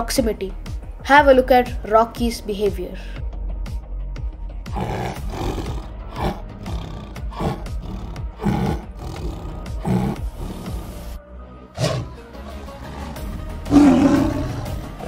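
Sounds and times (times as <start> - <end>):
tiger roaring: 4.7 - 11.1, 11.8 - 15.0.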